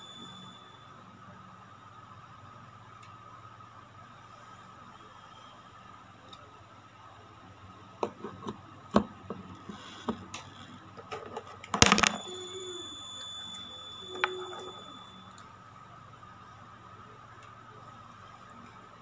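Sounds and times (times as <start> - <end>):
high-pitched tone: 11.8 - 15.4.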